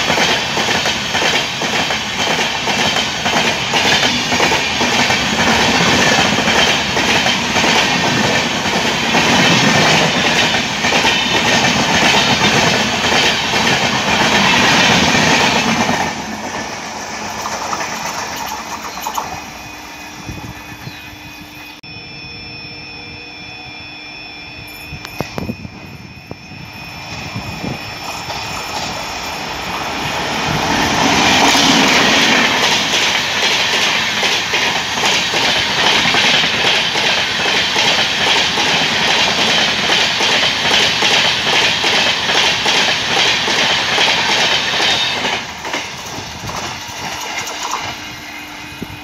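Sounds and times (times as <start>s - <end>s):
train wheels clattering on rails: 0.0s - 19.6s, 27.1s - 48.1s
train passing at speed: 0.0s - 22.6s, 24.5s - 49.0s.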